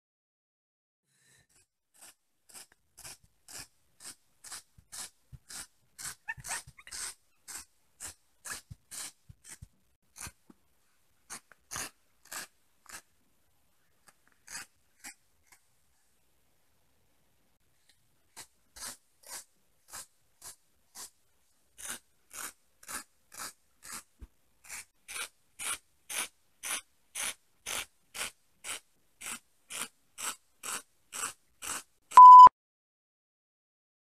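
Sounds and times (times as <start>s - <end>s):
loud steady beep: 32.2s - 32.5s.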